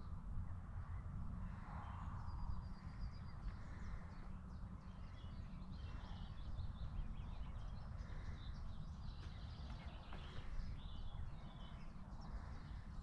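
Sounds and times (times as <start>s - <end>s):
birds chirping and singing: 2.8s - 13.0s.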